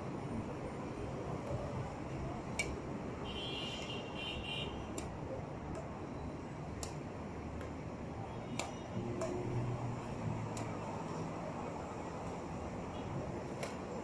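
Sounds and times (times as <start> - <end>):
racket hitting shuttlecock: 2.5 - 2.8, 4.9 - 5.9, 8.6 - 9.6, 13.4 - 14.0.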